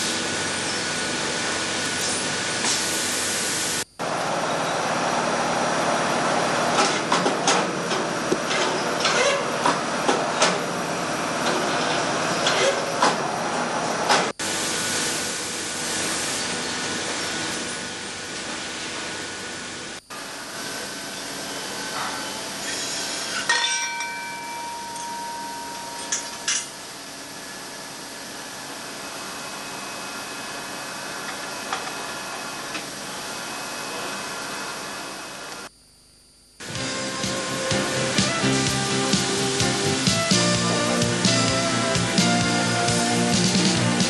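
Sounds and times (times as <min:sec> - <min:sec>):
valve grinding machine hissing: 0:19.6 - 0:23.5, 0:36.6 - 0:43.4.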